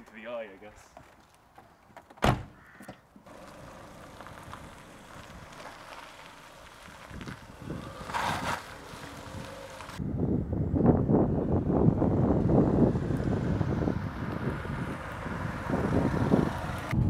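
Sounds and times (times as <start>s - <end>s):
car door thud: 2.2s - 2.6s
distant car pulling away: 3.3s - 10.0s, 12.0s - 17.0s
wind buffeting microphone: 6.6s - 17.0s.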